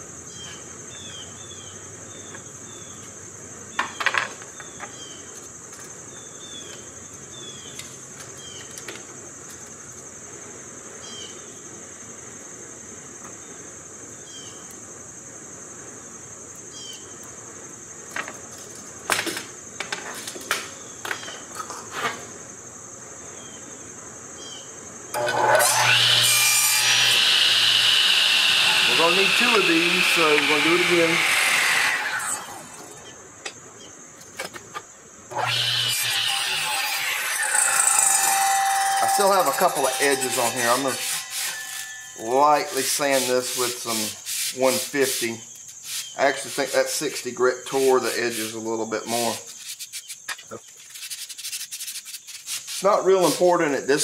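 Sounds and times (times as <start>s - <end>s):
insects chirring: 0.0s - 54.0s
power saw motor whine: 25.1s - 33.1s, 35.3s - 42.8s.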